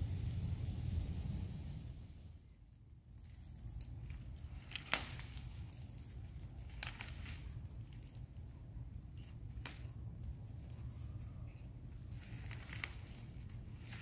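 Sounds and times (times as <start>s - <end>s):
steady low rumble: 0.0s - 14.0s
vines rustling: 2.5s - 14.0s
vine shoots snapping: 2.9s - 11.0s, 11.9s - 14.0s.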